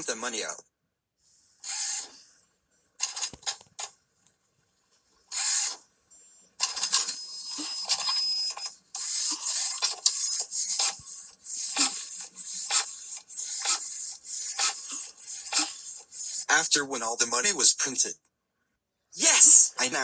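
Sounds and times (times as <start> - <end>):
cartoon printer printing: 1.6 - 3.9, 5.3 - 5.8, 6.4 - 16.6.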